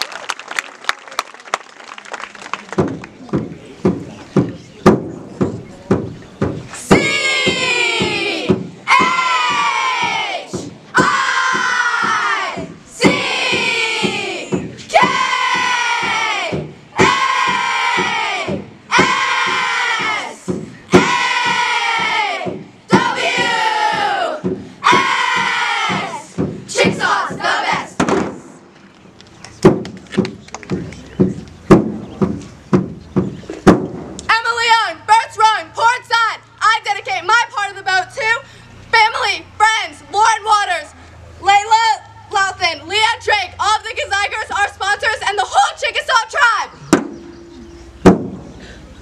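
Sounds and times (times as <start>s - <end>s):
sharp knocks: 2.8s - 12.4s, 13.0s - 28.4s, 29.6s - 34.3s, 46.8s - 48.6s
girls yelling a chant in unison: 6.8s - 28.0s.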